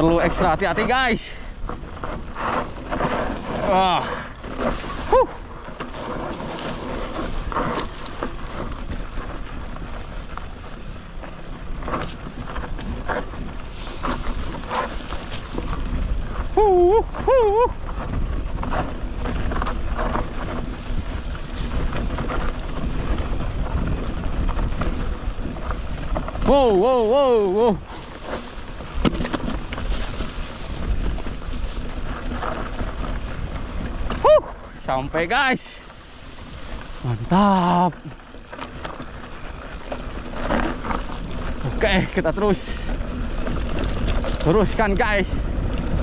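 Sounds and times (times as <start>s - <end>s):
bike tyres rolling over rough ground: 0.0s - 46.0s
wind buffeting microphone: 0.0s - 46.0s
bike clicks and knocks: 4.4s - 16.5s, 17.2s - 34.3s.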